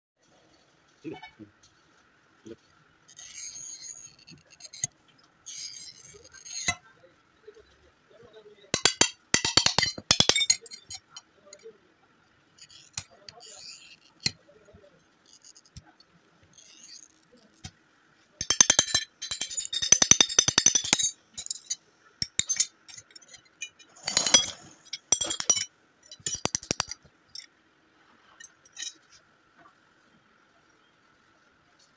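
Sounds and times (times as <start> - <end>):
glass cutter tapping on glass: 8.8 - 11.2, 18.4 - 23.3, 24.1 - 27.0.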